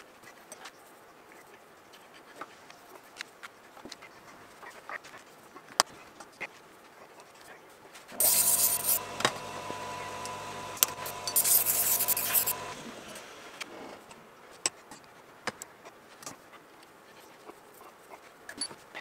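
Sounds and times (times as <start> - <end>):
power tool grinding metal: 8.1 - 14.1
hand tools clinking: 10.2 - 12.7.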